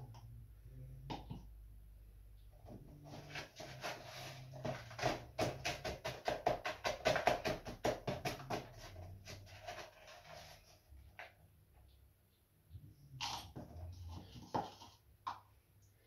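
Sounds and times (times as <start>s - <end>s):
rapid tapping on plastic funnel: 4.6s - 10.0s.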